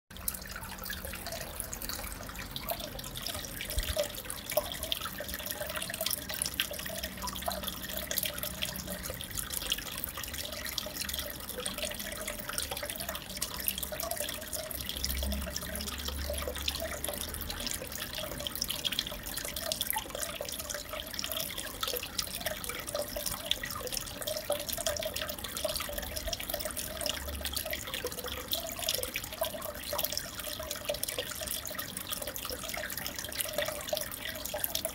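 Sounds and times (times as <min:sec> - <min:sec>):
water trickling and splashing: 0:00.1 - 0:34.9.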